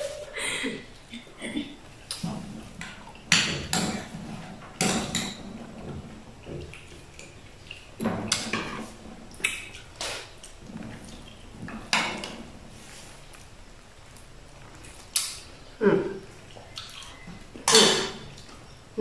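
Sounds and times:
cutlery clinking against dish: 17.6 - 18.2.

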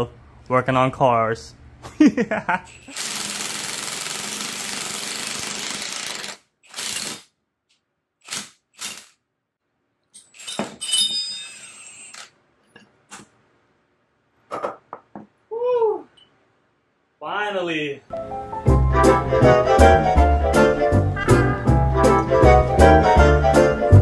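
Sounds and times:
metal tool parts clanking: 10.2 - 12.3.

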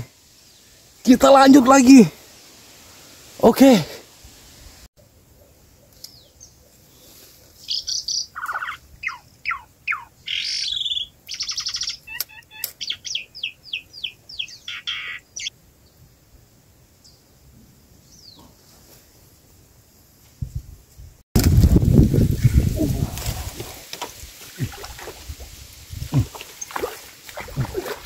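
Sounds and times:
songbird singing: 4.6 - 18.8, 22.1 - 28.0.

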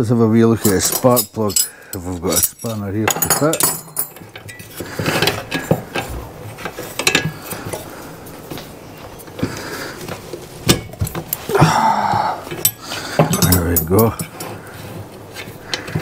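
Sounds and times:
metal hand tools clinking: 0.5 - 7.9, 12.4 - 14.6.

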